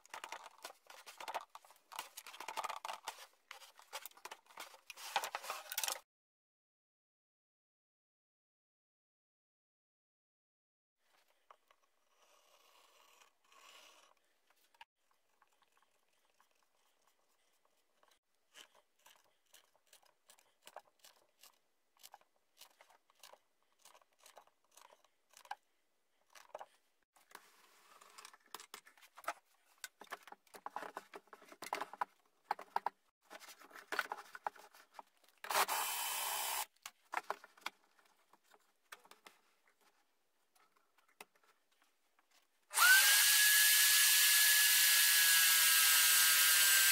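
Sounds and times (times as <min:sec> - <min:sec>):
tools and plywood clicking and knocking: 0:00.0 - 0:06.0, 0:17.5 - 0:35.8, 0:36.7 - 0:42.9.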